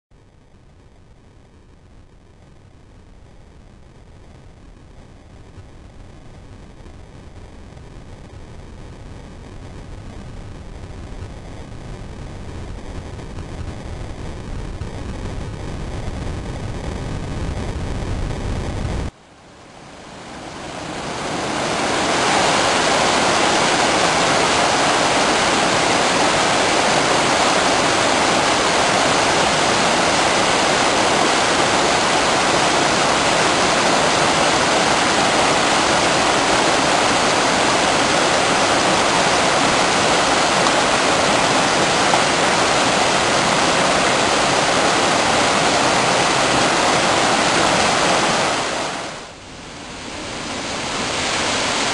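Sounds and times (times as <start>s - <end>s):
waterfall rushing: 19.6s - 51.9s.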